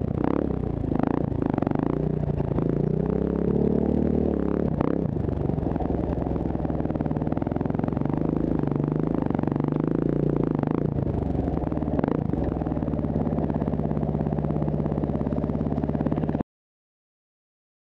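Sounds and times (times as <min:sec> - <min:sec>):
dirt bike engine running: 0:00.0 - 0:16.4.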